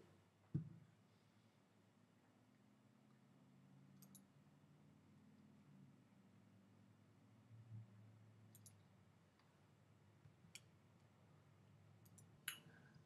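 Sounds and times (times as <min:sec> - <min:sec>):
faint computer mouse clicks: 0:04.0 - 0:04.3, 0:08.5 - 0:08.8.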